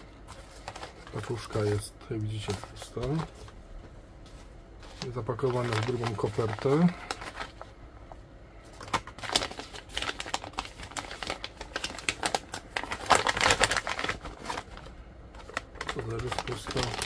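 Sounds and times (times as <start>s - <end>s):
paper envelope crinkling: 0.0s - 3.6s, 4.8s - 7.8s, 8.7s - 17.0s
plastic blister pack crackling: 0.0s - 3.6s, 4.8s - 7.8s, 8.6s - 17.0s.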